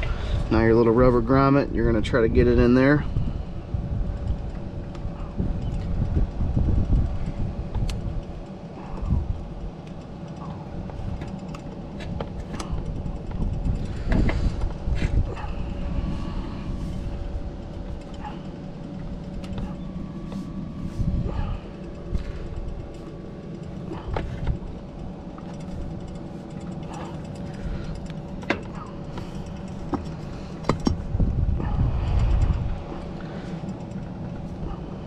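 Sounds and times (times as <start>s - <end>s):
faint hum: 0.0s - 35.0s
low rumble: 0.0s - 35.0s
rubber grommet clicks and scrapes: 4.2s - 16.2s.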